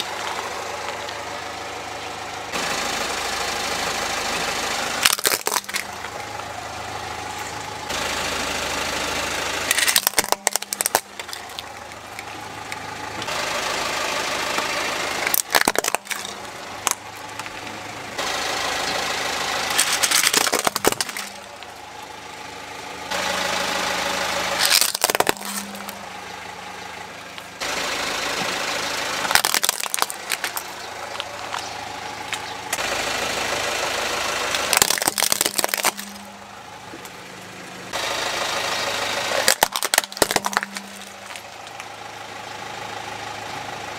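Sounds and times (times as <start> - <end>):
car engine idling: 0.0 - 43.9
plastic toys crushed by tyre: 4.9 - 6.3, 9.6 - 13.4, 14.5 - 18.3, 19.6 - 21.8, 24.4 - 26.2, 29.2 - 32.9, 34.4 - 37.2, 39.2 - 41.9.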